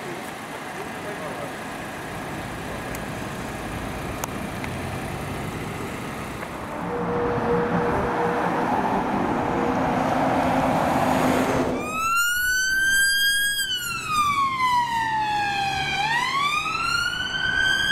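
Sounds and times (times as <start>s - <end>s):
vehicle engine and tyre noise: 0.0s - 17.9s
electronic wail siren: 11.7s - 17.9s.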